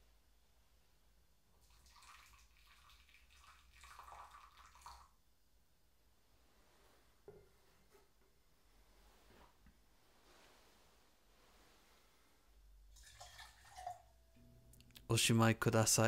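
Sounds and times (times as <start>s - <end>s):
hot water pouring into bowl: 1.6s - 5.2s, 13.0s - 14.1s.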